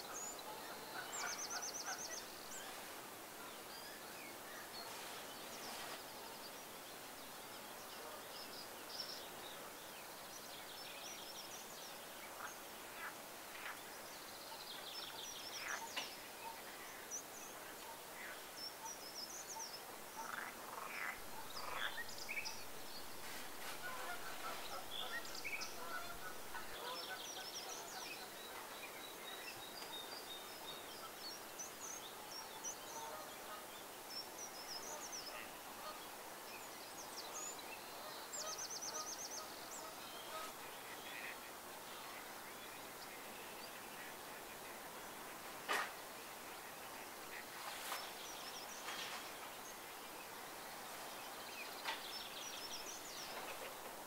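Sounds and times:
birds chirping and trilling: 0.0s - 54.0s
faint outdoor background: 0.0s - 54.0s
louder lower bird calls: 20.2s - 27.5s.

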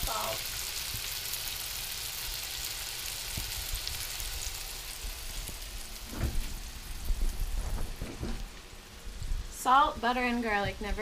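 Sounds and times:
fish sizzling in a pan: 0.0s - 11.0s.

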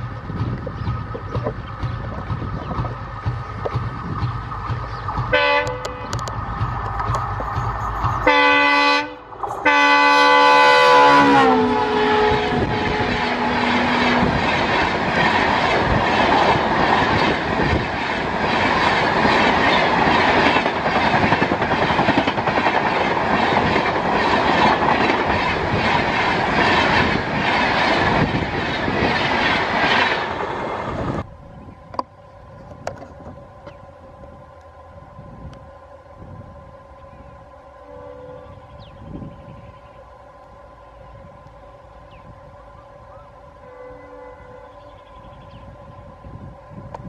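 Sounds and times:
train wheels clattering over rail joints: 0.0s - 8.8s, 13.6s - 30.6s
diesel locomotive rumbling: 0.0s - 47.0s
train horn blasts: 5.3s - 6.3s, 8.2s - 14.4s, 37.0s - 39.6s, 40.5s - 46.9s.

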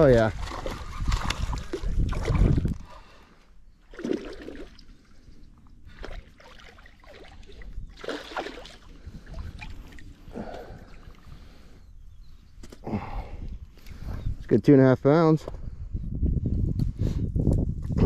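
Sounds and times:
fish splashing in water: 3.9s - 4.9s, 5.9s - 10.1s.

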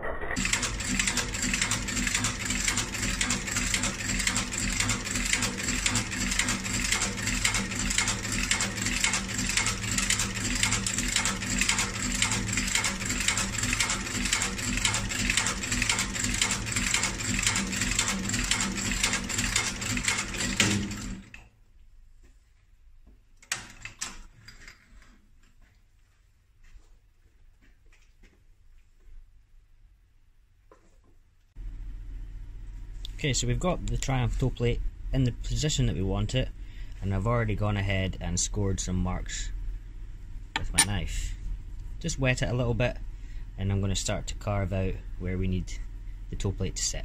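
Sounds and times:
stitching machine clattering: 0.4s - 21.4s.

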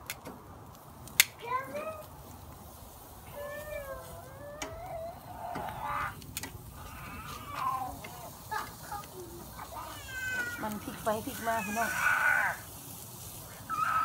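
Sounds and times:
animal drawn-out gliding cries: 3.3s - 12.8s, 13.5s - 14.0s
tongs clicking on grill grate: 4.0s - 9.2s.

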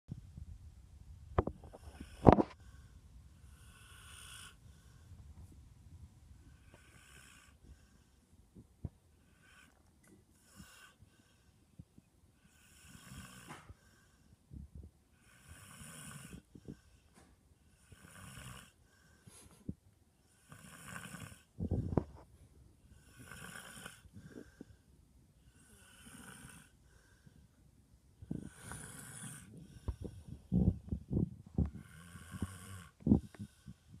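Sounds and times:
dog snoring: 1.6s - 2.8s, 3.4s - 4.9s, 6.5s - 8.1s, 9.3s - 9.8s, 10.4s - 11.5s, 12.4s - 14.2s, 15.2s - 17.0s, 17.7s - 19.5s, 20.3s - 22.2s, 22.9s - 24.7s, 25.4s - 27.2s, 28.2s - 30.9s, 31.6s - 33.8s.

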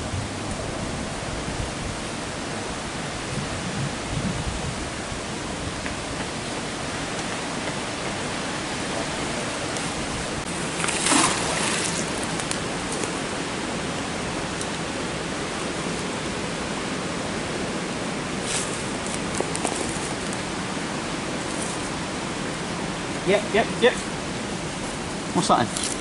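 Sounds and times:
water rushing over a weir: 0.0s - 26.0s
magnet splashing into water: 10.8s - 12.5s.

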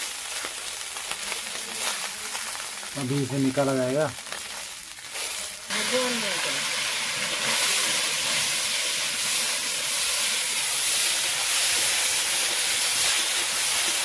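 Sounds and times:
fish sizzling in hot oil: 0.0s - 14.0s.

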